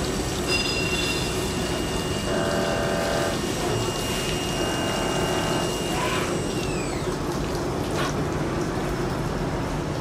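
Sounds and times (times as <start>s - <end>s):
coolant splashing: 0.0s - 10.0s
milling machine whine: 0.7s - 7.3s.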